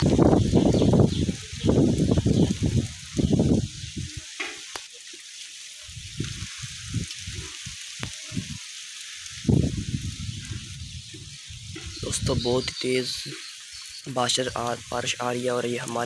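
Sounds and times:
wind buffeting microphone: 0.0s - 4.4s, 5.9s - 8.6s, 9.2s - 13.4s
heavy rain falling: 0.0s - 16.0s.

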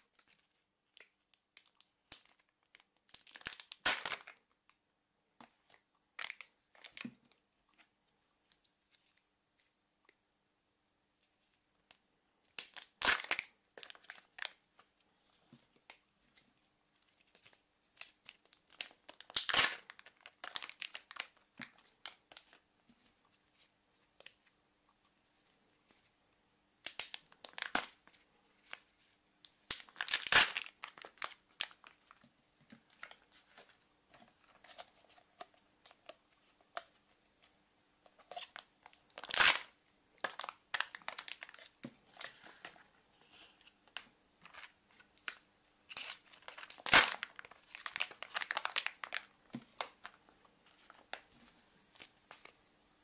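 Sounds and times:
wrapper crinkling and tearing: 0.1s - 4.4s, 12.5s - 14.9s, 17.2s - 22.6s, 26.8s - 28.8s, 29.7s - 32.2s, 38.2s - 51.2s.

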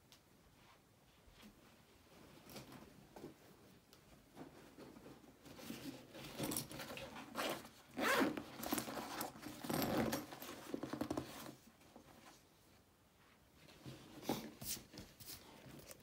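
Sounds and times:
zipper rasping: 7.2s - 11.5s.

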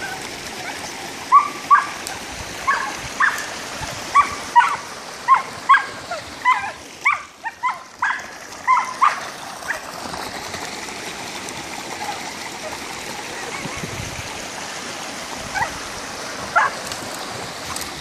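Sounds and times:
dog barking: 1.3s - 2.0s, 2.7s - 3.5s, 4.1s - 9.8s, 16.5s - 16.8s.

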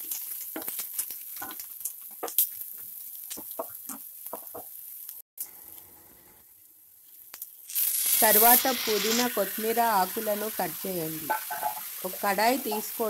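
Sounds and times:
chillies sizzling in hot oil: 0.0s - 6.0s, 6.7s - 13.0s
spatula scraping pan: 8.2s - 13.0s.

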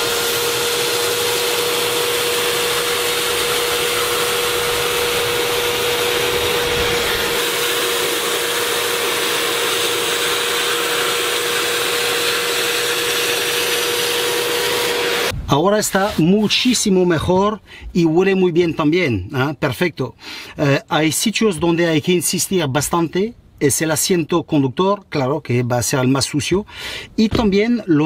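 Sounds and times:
upholstery cleaner running: 0.0s - 15.4s.

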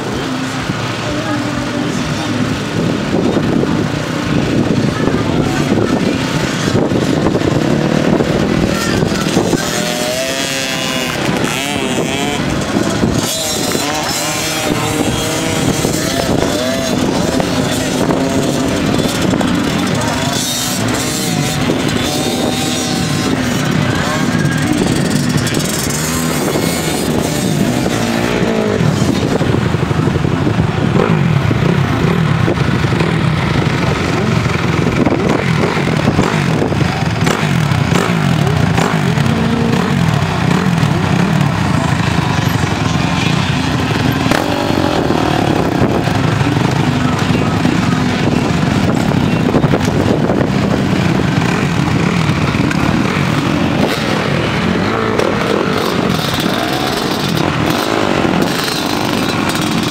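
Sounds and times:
small motocross bike engines revving: 0.0s - 59.9s.

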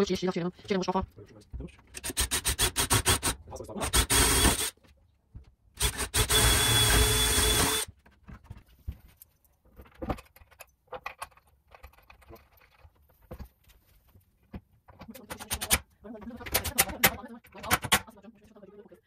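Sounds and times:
cordless drill driving screw: 2.0s - 4.7s, 5.8s - 7.9s.

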